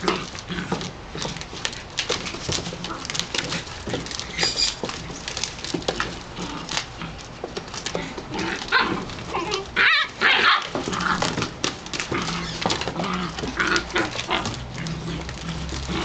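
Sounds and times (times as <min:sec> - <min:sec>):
paws scrabbling on plastic tub: 0:00.0 - 0:16.0
puppies yelping: 0:04.1 - 0:05.2, 0:08.6 - 0:11.4.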